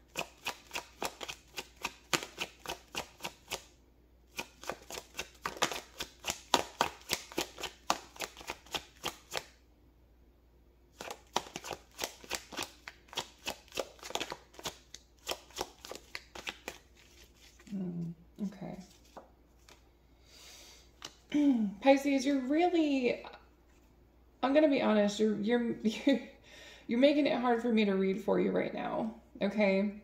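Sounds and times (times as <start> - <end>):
cards being shuffled: 0.1 - 3.7, 4.3 - 9.5, 11.0 - 19.8, 21.0 - 21.3.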